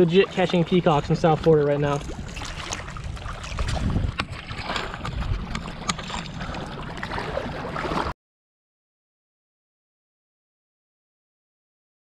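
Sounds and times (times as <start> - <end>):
water splashing and sloshing: 0.0 - 8.2.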